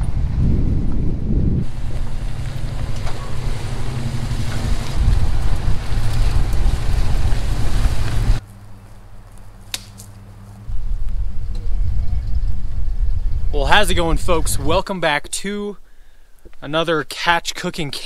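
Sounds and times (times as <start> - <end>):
wind noise on microphone: 0.0 - 8.4, 10.7 - 15.0
vehicle engine running: 0.0 - 13.3
low hum: 0.0 - 14.8.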